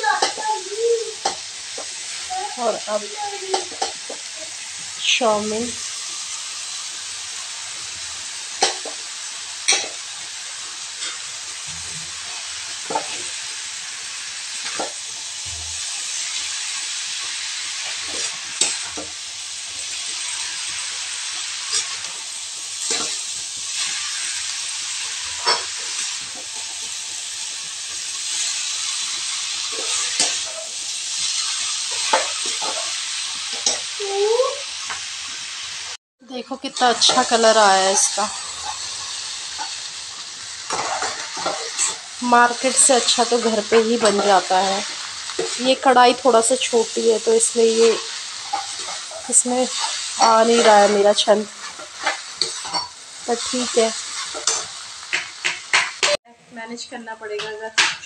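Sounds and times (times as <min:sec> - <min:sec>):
noodles sizzling in hot oil: 0:00.0 - 0:58.0
metal spatula scraping pan: 0:21.6 - 0:22.1, 0:25.1 - 0:27.0, 0:28.3 - 0:33.9, 0:36.6 - 0:56.2.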